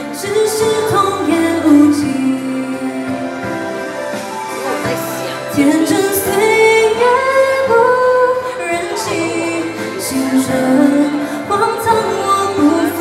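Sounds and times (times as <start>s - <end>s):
backing music: 0.0s - 13.0s
woman singing pop ballad: 0.0s - 13.0s.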